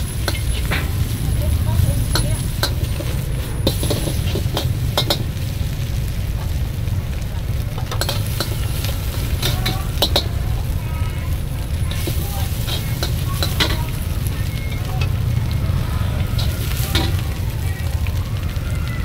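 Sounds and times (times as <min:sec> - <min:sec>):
steady low rumble: 0:00.0 - 0:18.6
food sizzling in a pan: 0:00.0 - 0:19.0
metal spatula scraping a wok: 0:00.1 - 0:05.7, 0:07.8 - 0:10.8, 0:11.7 - 0:15.6, 0:16.2 - 0:17.2.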